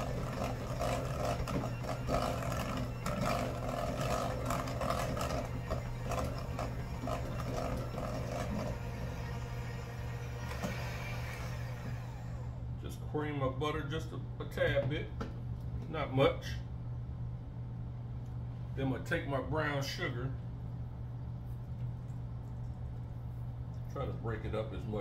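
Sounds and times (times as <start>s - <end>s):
hand mixer motor hum: 0.0s - 12.8s.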